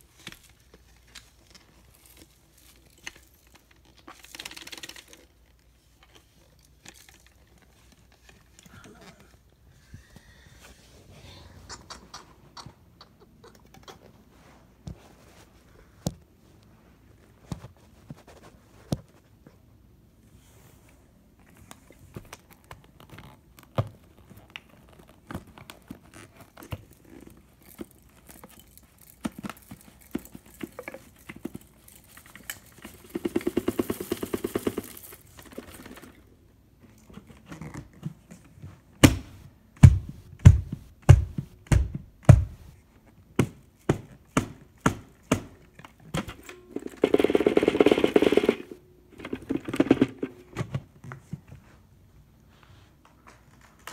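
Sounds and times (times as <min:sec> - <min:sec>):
heavy thumps: 0:39.0 - 0:42.8.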